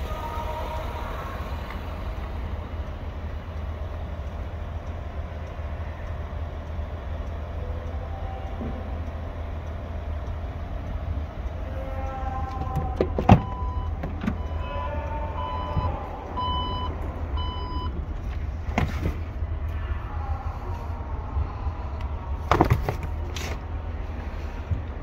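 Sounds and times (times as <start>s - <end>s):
low steady rumble: 0.0s - 25.0s
short warning beeps: 13.4s - 18.0s.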